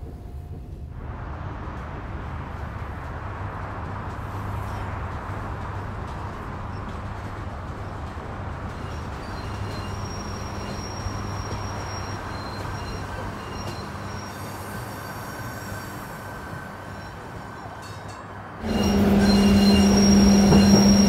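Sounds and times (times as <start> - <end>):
train rumble: 0.0 - 21.0
high wheel squeals: 8.7 - 17.8, 18.6 - 21.0.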